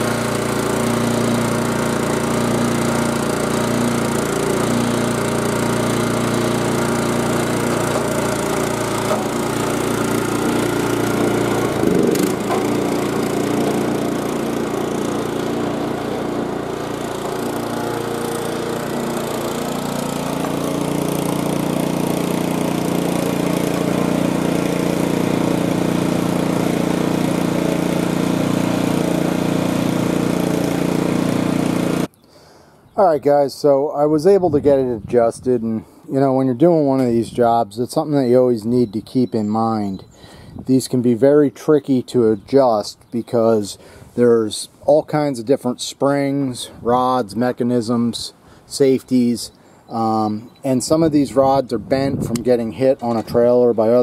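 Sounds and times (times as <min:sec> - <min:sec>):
mower engine running: 0:00.0 - 0:32.1, 0:50.0 - 0:54.0.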